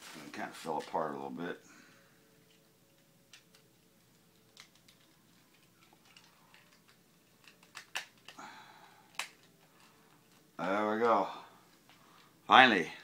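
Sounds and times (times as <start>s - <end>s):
plastic rustling: 2.4s - 8.4s
sharp plastic snaps: 2.5s - 8.4s, 9.0s - 11.1s
plastic toy clicks: 4.3s - 8.4s.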